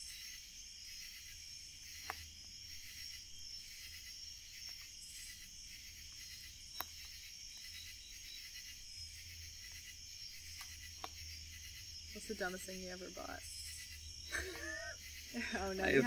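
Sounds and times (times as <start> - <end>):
night insects chorus: 0.0 - 16.0
wood fire crackling and popping: 4.5 - 7.7, 10.4 - 11.4.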